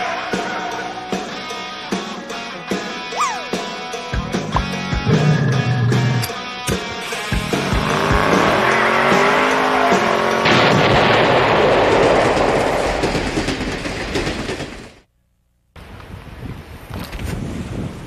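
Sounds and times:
loud rumbling explosion: 10.4s - 14.2s.

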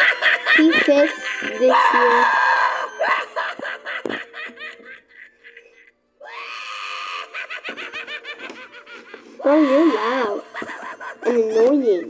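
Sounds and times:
clown maniacal laugh: 0.0s - 1.9s, 2.8s - 5.9s, 6.8s - 9.2s, 10.0s - 11.4s.

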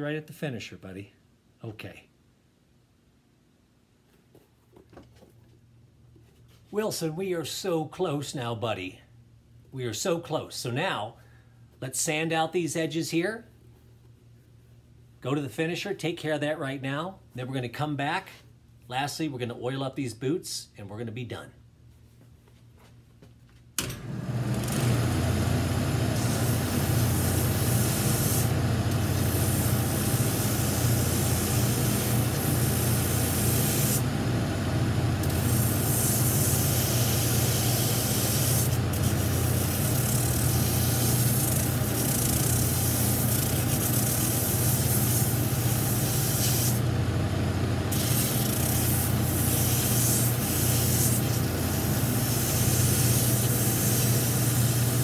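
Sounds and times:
loud hiss of sanding: 26.1s - 34.1s, 35.2s - 46.9s, 47.9s - 55.0s.

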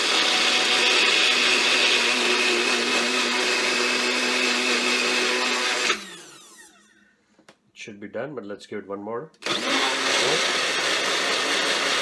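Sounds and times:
blender motor whining: 0.0s - 7.0s, 9.4s - 12.0s.

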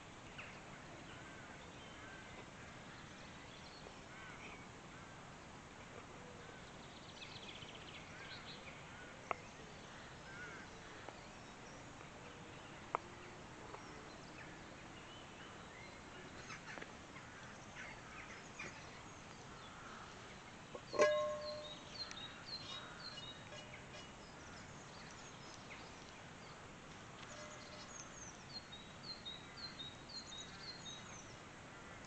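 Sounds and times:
bird calls: 15.8s - 26.2s.

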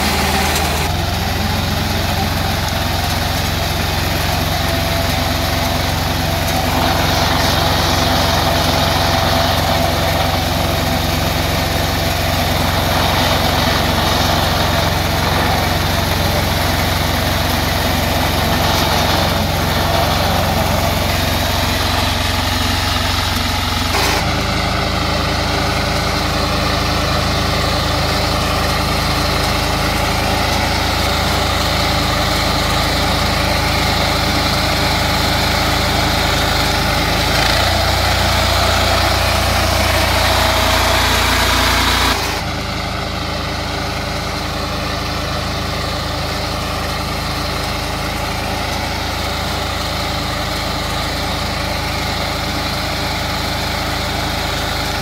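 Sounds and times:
power reaper engine running: 0.0s - 55.0s.

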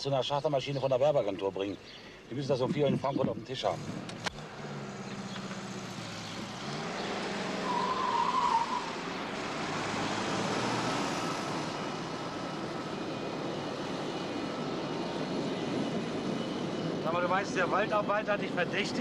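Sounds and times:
aircraft engines running: 2.1s - 19.0s
car engine humming: 3.4s - 13.7s.

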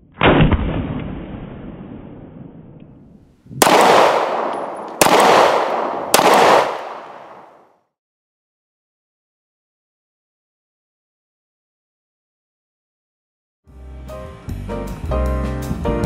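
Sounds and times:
pistol shots: 3.5s - 7.7s.

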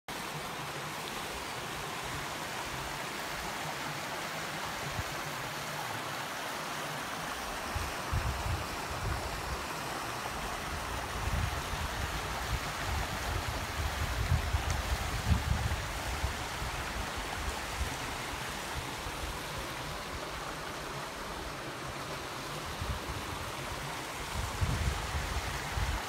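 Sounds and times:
stream rushing over rocks: 0.1s - 26.0s
wind buffeting microphone: 7.7s - 9.6s, 10.6s - 19.4s, 22.6s - 26.0s.

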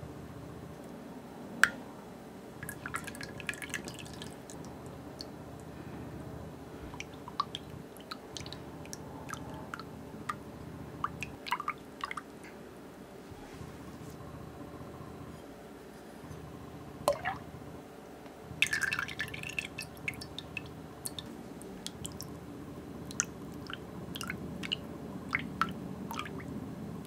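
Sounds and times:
liquid sloshing and dripping: 2.6s - 5.7s, 6.8s - 10.4s, 11.0s - 12.3s, 17.1s - 17.4s, 18.6s - 22.4s, 23.1s - 26.5s.

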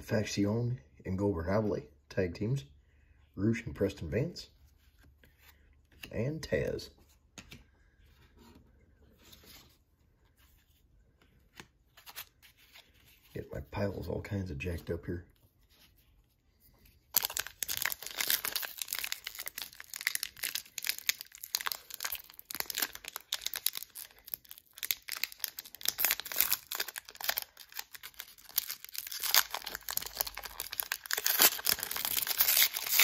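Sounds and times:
wrapper tearing and crinkling: 17.1s - 33.0s.

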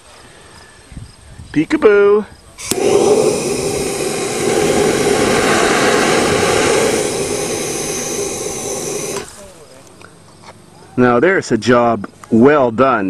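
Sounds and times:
pressurized spray hissing: 2.6s - 9.9s.

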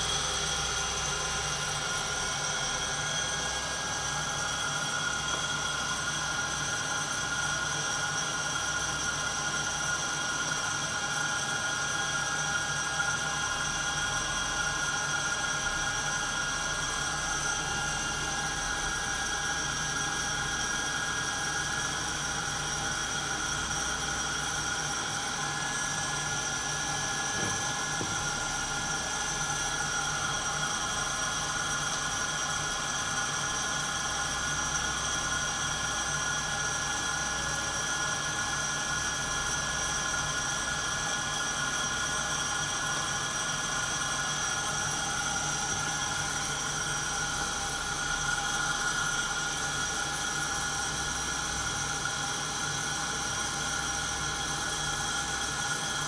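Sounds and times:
coffee roaster whirring: 0.0s - 56.0s
high-pitched whine: 13.5s - 36.0s.

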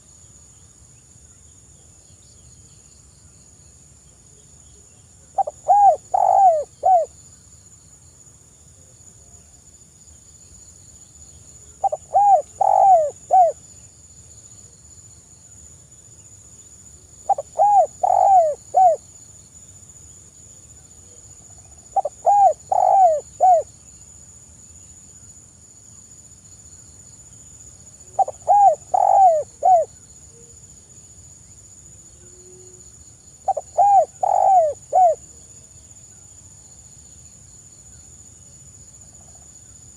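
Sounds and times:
dove cooing: 5.4s - 7.1s, 11.8s - 13.6s, 17.3s - 19.0s, 21.9s - 23.7s, 28.1s - 29.9s, 33.5s - 35.3s.

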